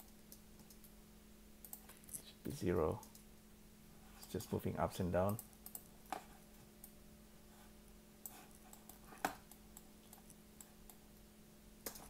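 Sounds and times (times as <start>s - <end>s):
keyboard and mouse clicks: 0.0s - 0.9s, 1.6s - 2.2s, 5.2s - 7.0s
low steady hum: 0.0s - 12.0s.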